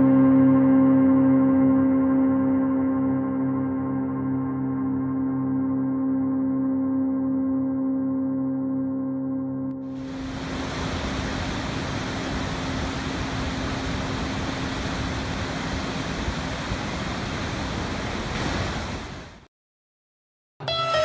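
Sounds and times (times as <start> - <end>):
waterfall rushing: 9.9 - 19.4.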